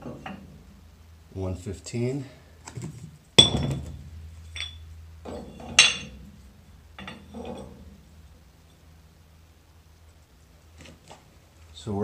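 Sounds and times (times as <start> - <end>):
iron weight plates clanking: 3.4 - 8.0.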